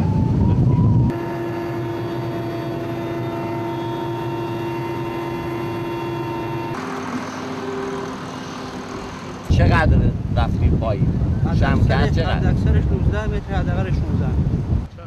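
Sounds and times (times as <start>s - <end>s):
aircraft engines droning: 0.0s - 14.5s.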